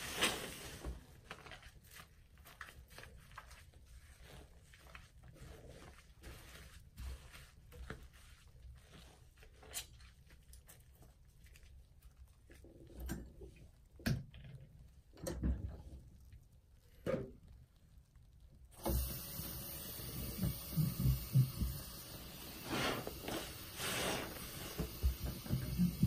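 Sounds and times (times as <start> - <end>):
soapy sponge squishing: 0.0 - 26.0
foam bubbles crackling: 15.8 - 26.0.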